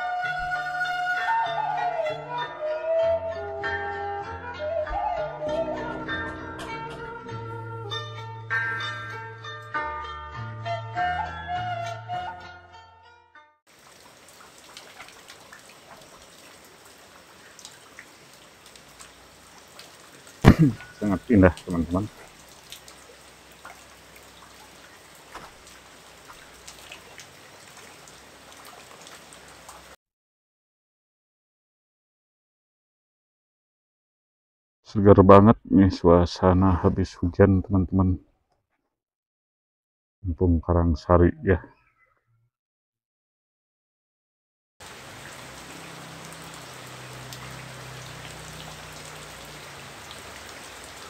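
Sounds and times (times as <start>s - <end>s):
light rain hissing: 13.7s - 30.0s, 44.8s - 51.0s
water drops ticking: 17.4s - 29.9s.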